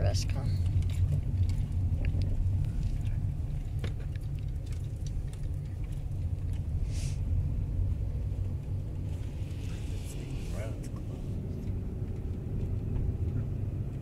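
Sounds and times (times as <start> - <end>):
car engine and road rumble: 0.0 - 14.0
brief hiss: 6.8 - 7.2.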